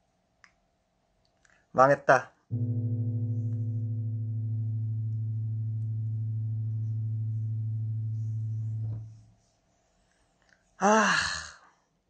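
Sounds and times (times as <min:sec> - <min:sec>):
electronic keyboard chord: 0:02.5 - 0:09.2.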